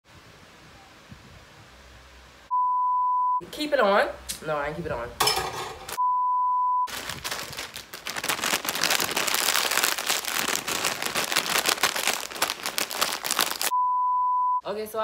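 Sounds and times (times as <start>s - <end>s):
test-tone beep: 2.5s - 3.4s, 6.0s - 6.9s, 13.7s - 14.6s
chip bag crackling: 6.9s - 13.7s.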